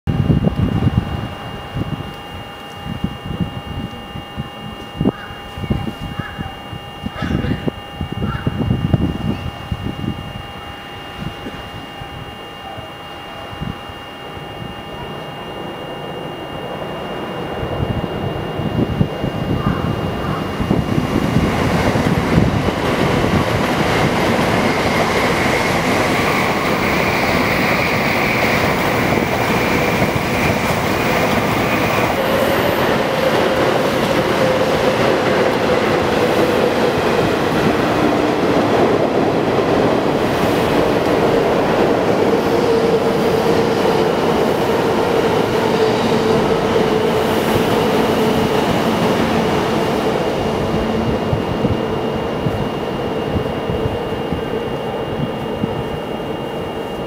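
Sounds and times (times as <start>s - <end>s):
high train whine: 0.0s - 57.0s
low steady train tone: 0.1s - 57.0s
train wheels rumbling on rail: 17.0s - 57.0s.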